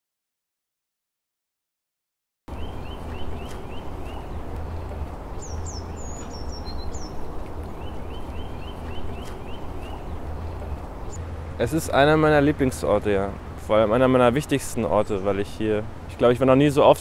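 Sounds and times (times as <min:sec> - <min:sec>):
sharp bird calls: 0:02.5 - 0:11.2
birds chirping: 0:02.5 - 0:17.0.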